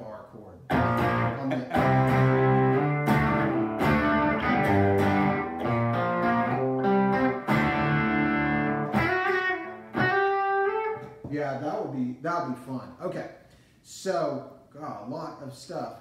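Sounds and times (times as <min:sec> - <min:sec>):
electric guitar strummed chords: 0:00.7 - 0:11.1.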